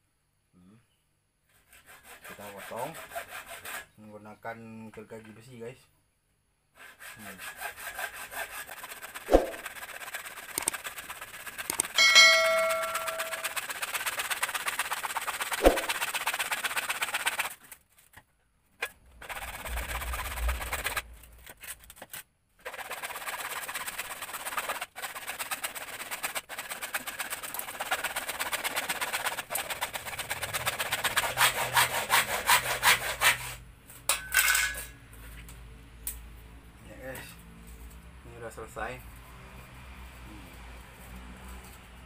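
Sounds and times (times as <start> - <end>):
hacksaw cutting plastic pipe: 1.5 - 3.9, 6.8 - 18.2, 18.8 - 33.6.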